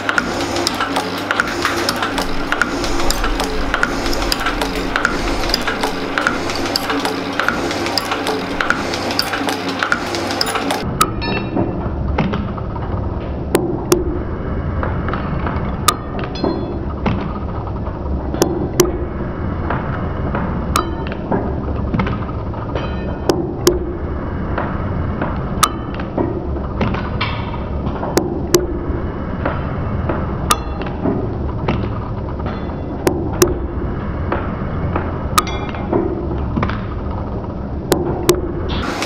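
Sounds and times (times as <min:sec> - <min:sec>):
metal shaper machine hum: 0:00.0 - 0:10.9, 0:38.6 - 0:39.0.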